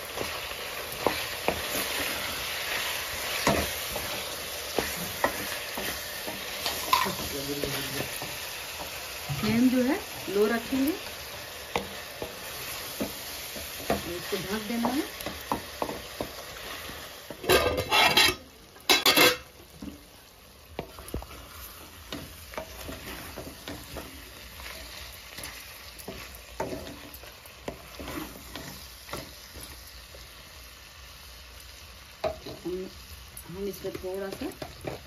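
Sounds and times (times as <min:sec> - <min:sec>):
low sizzle of frying: 0:00.0 - 0:35.0
wooden spatula scraping metal pan: 0:16.6 - 0:19.5, 0:20.8 - 0:29.3.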